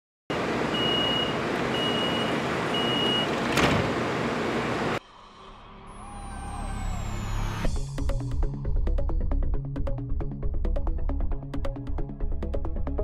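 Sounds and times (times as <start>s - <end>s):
high warning beeps: 0.7s - 3.3s.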